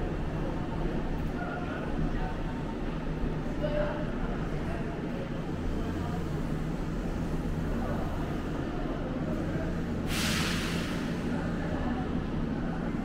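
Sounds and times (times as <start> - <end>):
burst of hissing air: 10.1 - 11.1.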